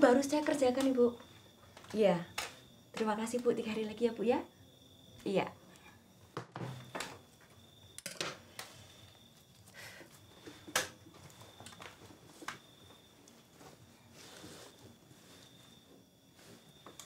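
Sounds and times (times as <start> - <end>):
small clicks and knocks: 8.0 - 8.7
soft fabric rustling: 11.3 - 17.0.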